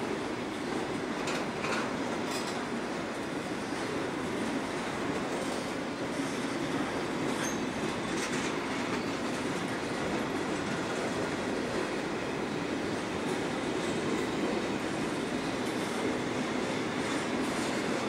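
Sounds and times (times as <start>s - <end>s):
train wheels on rail: 0.0s - 18.0s.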